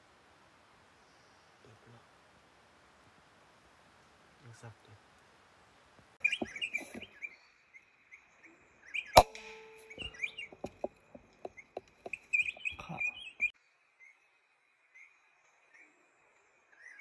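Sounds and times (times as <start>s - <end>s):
small birds chirping: 0.8s - 2.2s, 6.0s - 16.0s
air rifle shot: 9.2s - 10.4s.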